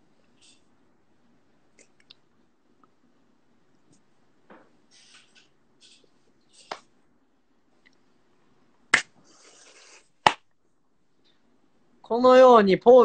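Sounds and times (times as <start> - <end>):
soft hissing: 4.8 - 6.9, 8.9 - 10.3.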